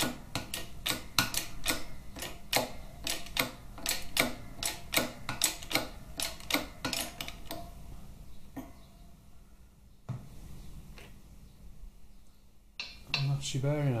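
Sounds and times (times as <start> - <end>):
sharp metallic clicks: 0.0 - 7.7.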